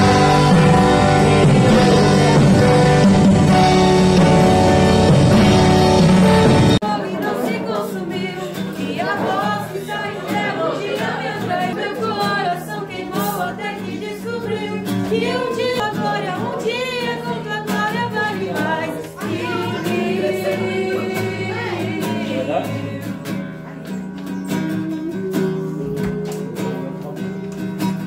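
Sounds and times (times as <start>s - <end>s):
acoustic guitar: 0.0s - 28.0s
girl singing: 6.8s - 23.2s, 24.7s - 26.9s.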